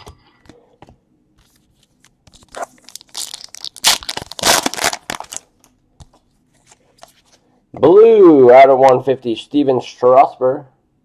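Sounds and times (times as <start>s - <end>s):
plastic wrapper crinkling: 1.5s - 7.3s
plastic wrapper clicks: 2.9s - 5.4s.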